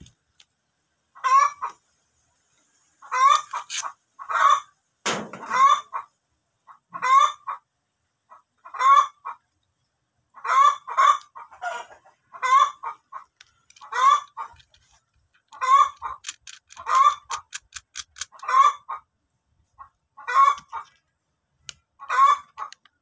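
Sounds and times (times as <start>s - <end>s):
chickens clucking: 1.1s - 23.0s
sharp knock: 5.0s - 5.5s.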